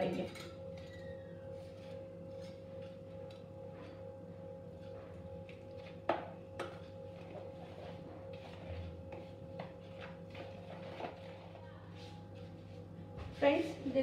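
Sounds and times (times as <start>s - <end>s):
steady background hum: 0.0s - 14.0s
spoon stirring batter in plastic bowl: 7.2s - 11.6s.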